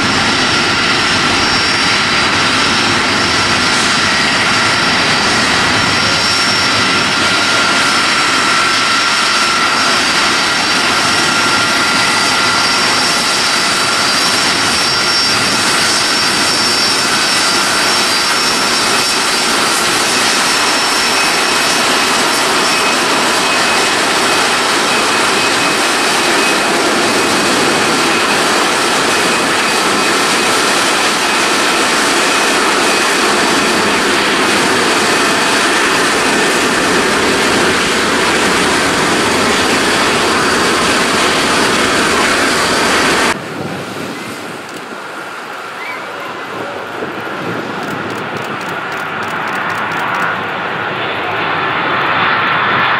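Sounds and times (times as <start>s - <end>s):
high engine whine: 0.0s - 52.9s
jet engines running: 0.0s - 52.9s.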